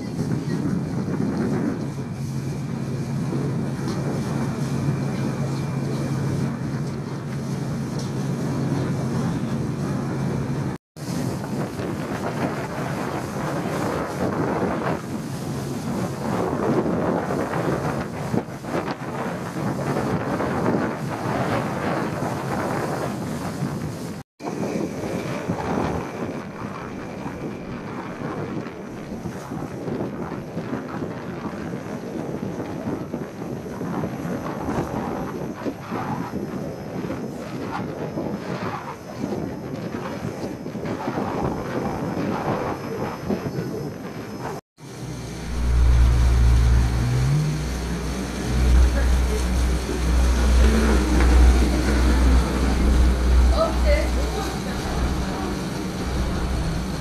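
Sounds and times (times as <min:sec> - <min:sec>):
boat and water rumble: 0:00.0 - 0:57.0
faint ship engine hum: 0:00.0 - 0:57.0
wind buffeting microphone: 0:00.0 - 0:57.0.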